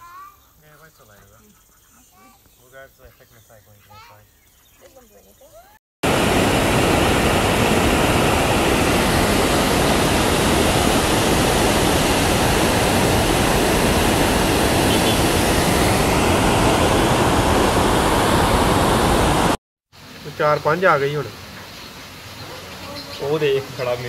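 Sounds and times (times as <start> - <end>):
water rushing over rocks: 6.0 - 19.6.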